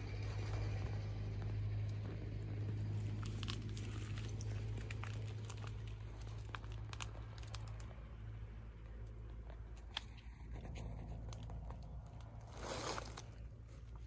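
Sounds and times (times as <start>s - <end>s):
low hum: 0.0s - 14.0s
light crinkling clicks: 3.0s - 12.4s.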